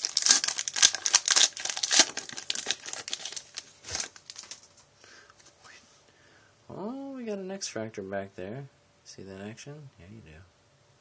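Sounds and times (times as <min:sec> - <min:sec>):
foil wrapper crinkling: 0:00.0 - 0:04.8.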